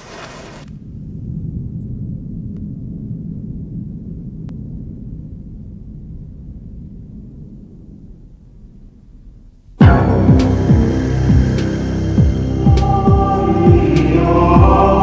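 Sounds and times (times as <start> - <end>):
deep low rumble: 0.0 - 15.0
faint clicks: 1.8 - 2.8, 4.3 - 9.8.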